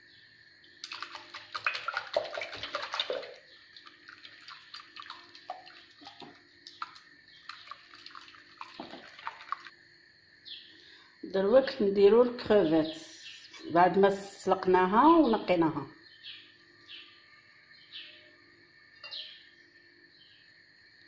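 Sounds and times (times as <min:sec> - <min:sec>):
whisk beating batter in glass bowl: 0:00.8 - 0:03.5.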